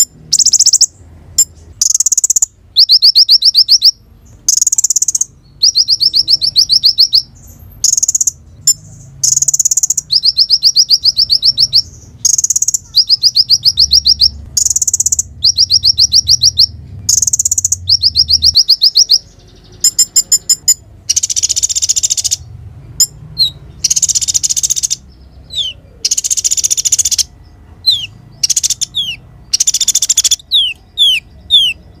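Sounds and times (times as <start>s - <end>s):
sunbird singing: 0.0s - 32.0s.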